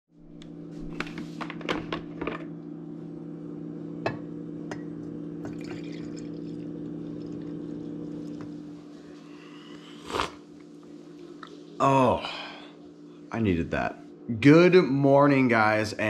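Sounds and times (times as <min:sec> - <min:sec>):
coffee pouring into a mug: 0:05.4 - 0:09.1.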